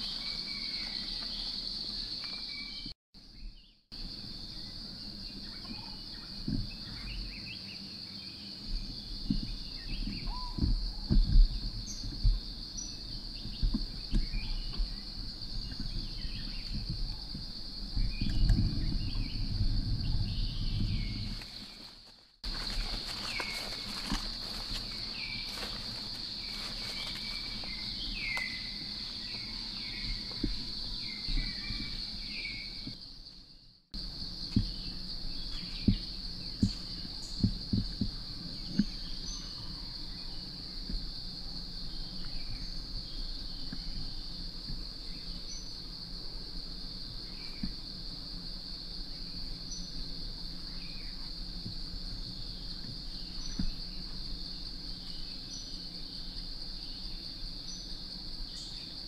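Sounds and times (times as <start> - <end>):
insects droning: 0.0 - 59.0
bird calls: 8.7 - 12.2.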